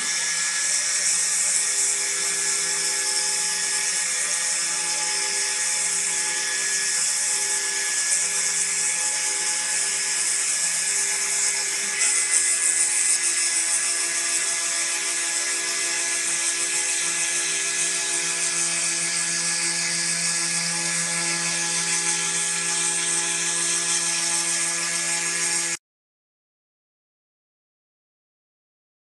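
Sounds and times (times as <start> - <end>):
spindle motor whine: 0.0 - 25.7
engraving bit hissing: 11.6 - 13.6.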